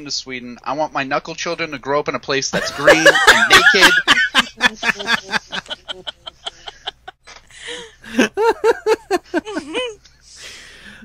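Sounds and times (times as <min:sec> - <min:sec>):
man laughing: 0:02.6 - 0:07.2, 0:08.0 - 0:10.0.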